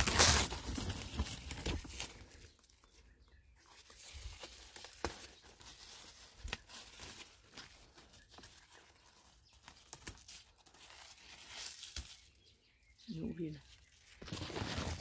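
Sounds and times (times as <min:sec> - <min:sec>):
leaves rustling and crackling: 0:00.0 - 0:03.0, 0:03.6 - 0:12.5, 0:13.1 - 0:15.0
leaves brushing microphone: 0:14.2 - 0:15.0.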